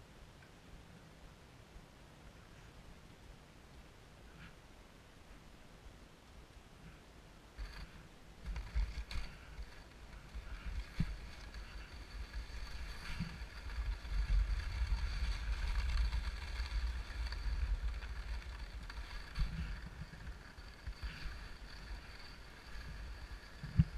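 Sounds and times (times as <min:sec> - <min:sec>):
wind rumbling on microphone: 0:00.0 - 0:23.9
skis scraping over snow: 0:07.6 - 0:23.9.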